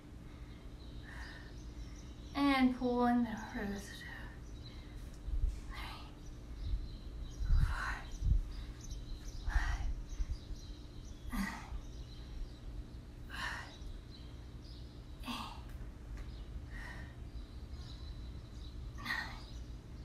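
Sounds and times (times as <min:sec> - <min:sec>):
faint steady hum: 0:00.0 - 0:20.0
woman breathing hard: 0:00.2 - 0:02.1, 0:07.5 - 0:10.5, 0:13.2 - 0:14.1, 0:15.2 - 0:18.1.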